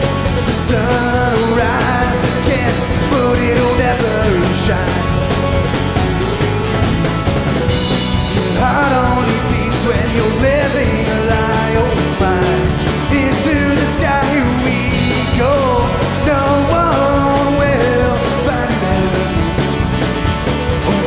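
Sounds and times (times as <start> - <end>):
man singing: 0.0 - 6.0, 8.0 - 21.0
acoustic guitar: 0.0 - 21.0
drum kit: 0.0 - 21.0
electric bass: 0.0 - 21.0
mandolin: 0.0 - 21.0.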